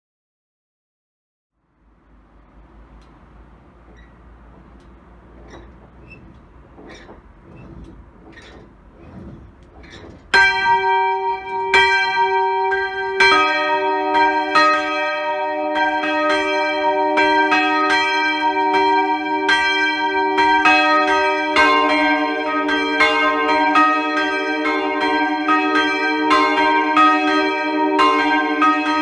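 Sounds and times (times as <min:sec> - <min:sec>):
faint regular knocks: 0:02.7 - 0:12.0
church bell tolling: 0:10.3 - 0:29.0.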